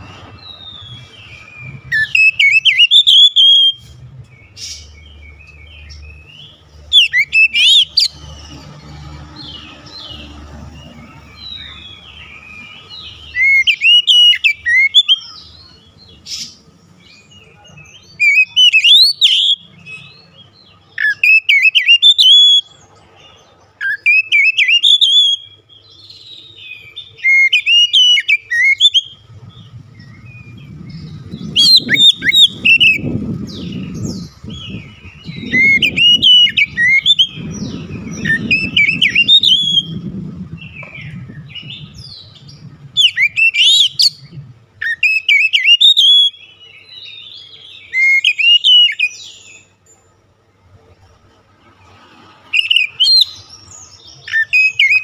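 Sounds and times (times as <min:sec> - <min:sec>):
bird singing whistled phrases: 0:00.5 - 0:03.9, 0:06.9 - 0:08.1, 0:12.6 - 0:15.4, 0:18.1 - 0:20.1, 0:21.0 - 0:22.7, 0:23.8 - 0:40.0, 0:40.6 - 0:46.6, 0:47.8 - 0:49.7, 0:52.6 - 0:53.4, 0:54.2 - 0:55.0.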